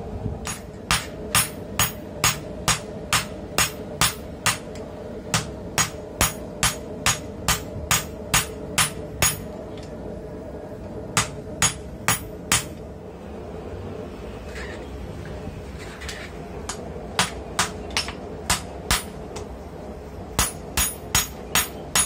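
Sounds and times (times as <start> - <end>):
steady hum: 0.0 - 22.0
hammer striking hot steel: 0.4 - 9.6, 11.2 - 12.8, 16.7 - 19.5, 20.4 - 22.0.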